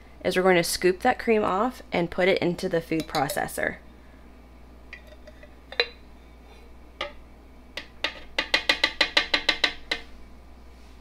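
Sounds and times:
spoon tapping jar rim: 3.0s - 3.5s, 4.9s - 6.0s, 7.8s - 10.1s.

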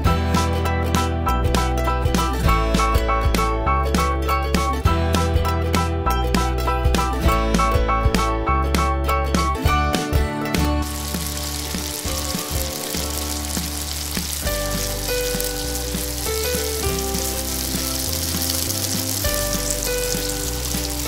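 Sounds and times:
background music: 0.0s - 21.0s
food deep-frying in oil: 10.8s - 21.0s.

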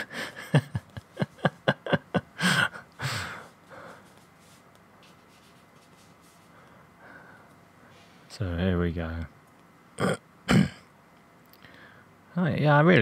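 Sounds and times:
man laughing: 0.0s - 3.5s
breathy exhale: 11.6s - 12.1s.

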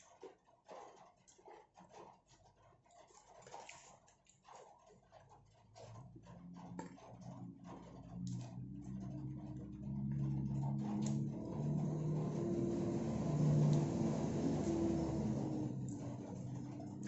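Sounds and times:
low engine hum: 6.1s - 17.0s.

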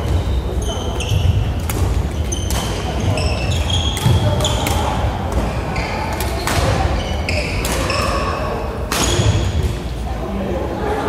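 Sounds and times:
racket hitting shuttlecock: 1.6s - 5.5s, 6.1s - 8.2s
shoes squeaking on wooden floor: 2.2s - 4.6s.

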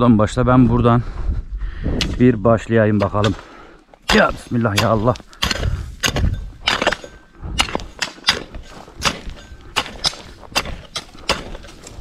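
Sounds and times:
hand tools digging ground: 2.0s - 12.0s.

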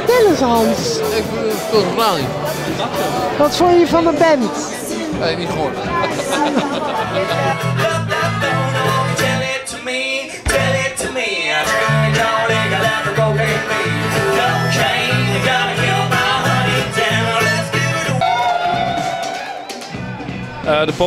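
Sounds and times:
person singing: 6.5s - 19.9s
harmonica: 6.8s - 9.6s.

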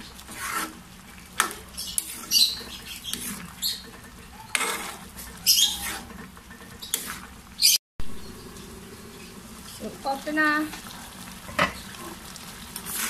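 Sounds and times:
metal spoon scraping pan: 0.2s - 0.8s, 1.4s - 7.3s.

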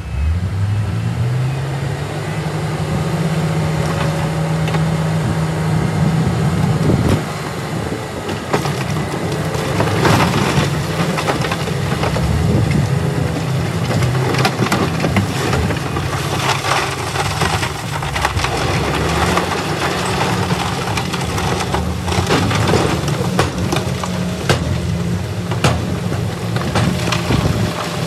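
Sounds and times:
heavy diesel engine running: 0.0s - 28.0s
rocks sliding and crashing onto pile: 6.6s - 28.0s.

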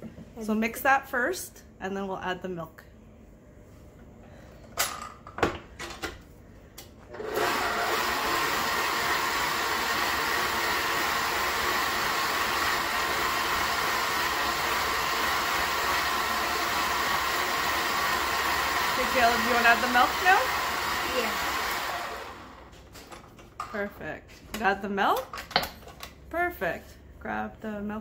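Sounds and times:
mixer motor whining: 7.1s - 22.8s.

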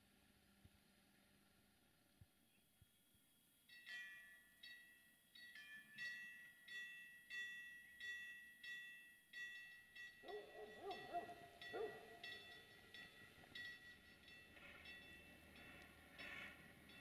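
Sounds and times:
level crossing warning bell ringing: 3.7s - 17.0s.

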